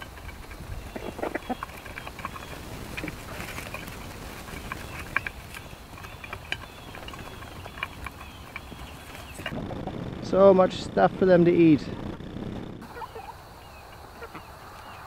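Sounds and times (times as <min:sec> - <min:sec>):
hens calling softly: 0:00.0 - 0:09.5, 0:12.8 - 0:15.0
beaks tapping on the ground: 0:00.0 - 0:09.6.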